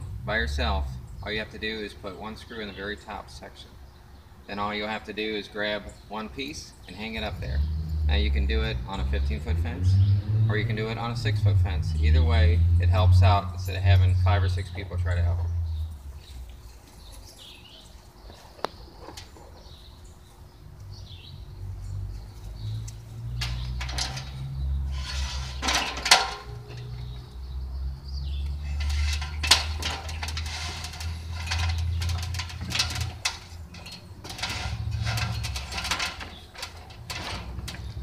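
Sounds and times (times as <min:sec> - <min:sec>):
birds chirping faintly: 0:00.0 - 0:38.0
lattice panel scraping and rattling: 0:22.7 - 0:27.4, 0:28.2 - 0:38.0.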